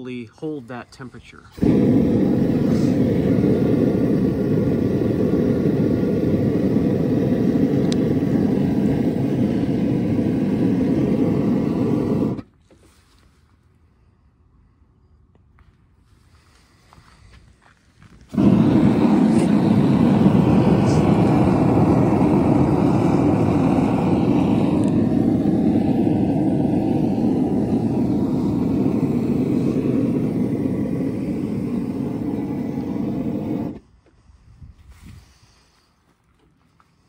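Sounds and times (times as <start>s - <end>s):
gas forge burner roaring: 1.4s - 12.8s, 17.6s - 33.8s.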